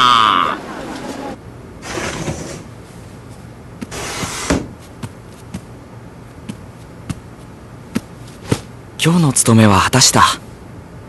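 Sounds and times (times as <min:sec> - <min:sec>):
sliding door opening: 0:00.6 - 0:02.7, 0:03.9 - 0:04.7.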